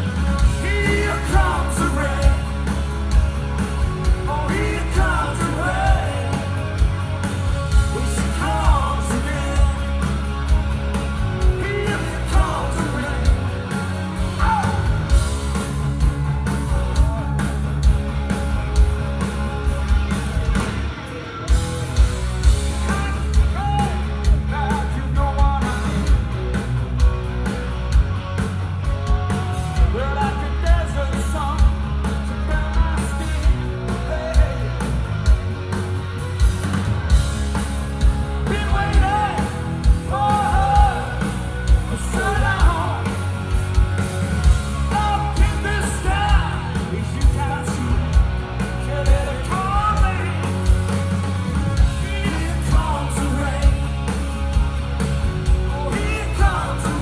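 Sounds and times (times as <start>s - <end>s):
man singing lead vocals: 0.0s - 2.9s, 4.0s - 10.5s, 11.3s - 15.2s, 22.7s - 26.3s, 29.0s - 35.0s, 38.3s - 43.3s, 44.5s - 50.9s, 51.8s - 54.2s, 55.6s - 57.0s
live rock band playing: 0.0s - 57.0s.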